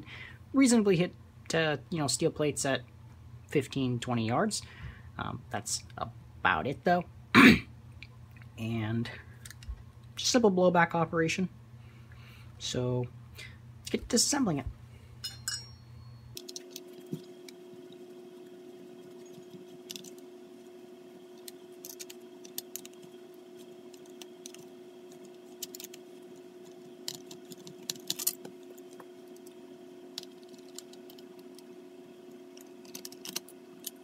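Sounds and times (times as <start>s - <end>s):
faint hum: 0.0s - 34.0s
metal pistol parts clicking: 27.0s - 28.5s.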